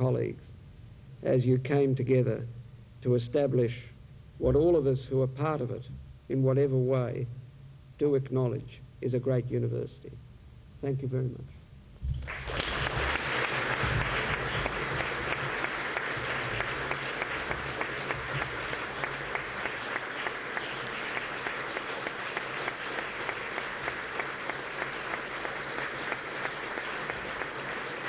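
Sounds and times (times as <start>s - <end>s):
audience applauding: 12.2s - 28.0s.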